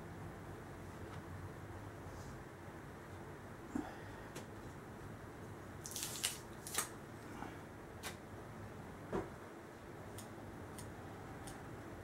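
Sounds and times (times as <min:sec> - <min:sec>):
tape peeling crackle: 0:05.8 - 0:07.0.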